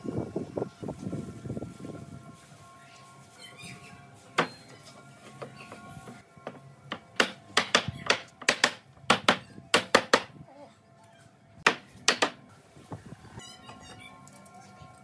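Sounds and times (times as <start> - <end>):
sharp knocks on wood: 6.4 - 10.3, 11.6 - 12.4
faint background music: 10.4 - 15.0.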